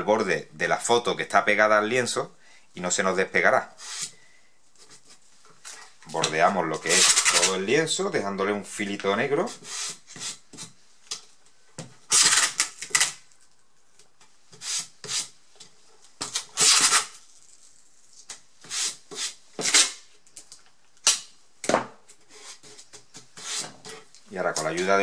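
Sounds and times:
masking tape pulled off roll: 12.1s - 13.4s, 16.2s - 20.0s.

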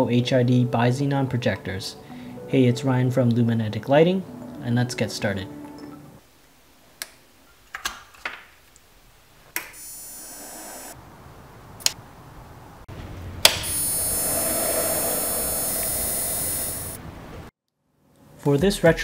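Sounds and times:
electric buzz: 9.7s - 11.0s, 13.4s - 17.1s.

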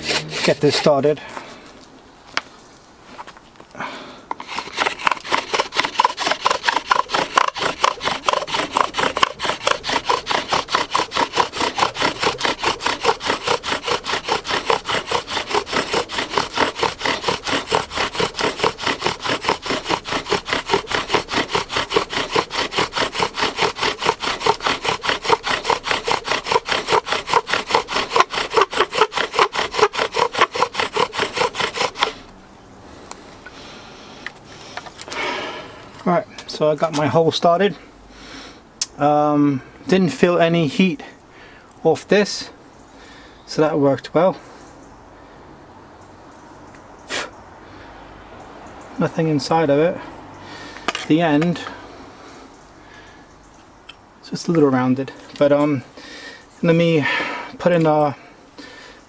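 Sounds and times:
bow drill spindle rubbing wood: 0.0s - 1.2s, 4.3s - 32.3s, 50.8s - 51.8s.

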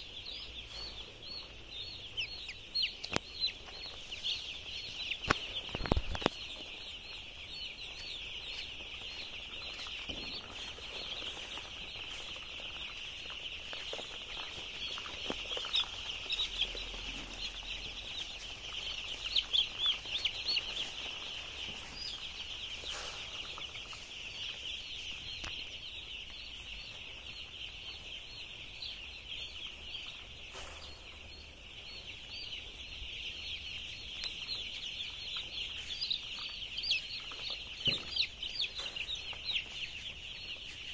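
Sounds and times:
chicks peeping: 0.0s - 40.9s.

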